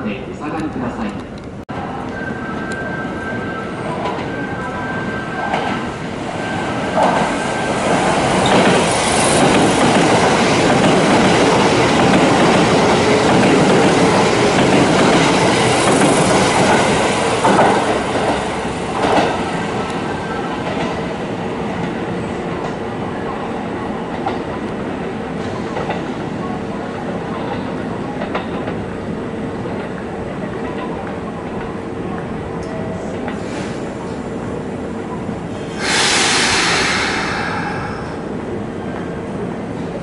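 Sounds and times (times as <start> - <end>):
train passing through station: 0.0 - 40.0.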